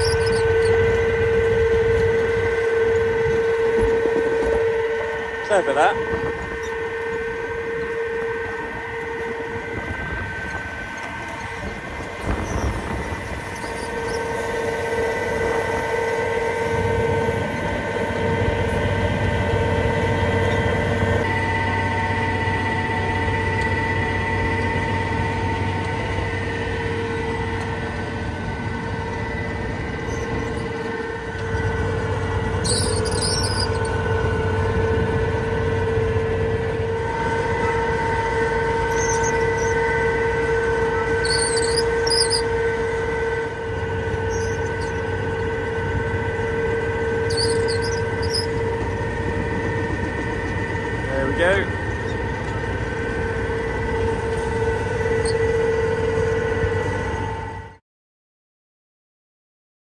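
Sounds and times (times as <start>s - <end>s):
short high squeaks: 0.0s - 1.2s, 12.2s - 16.1s, 32.5s - 34.0s, 37.6s - 43.4s, 44.1s - 45.5s, 46.5s - 48.9s, 54.1s - 55.9s
mechanical whine: 0.0s - 57.8s
tractor and planter running: 0.0s - 57.8s.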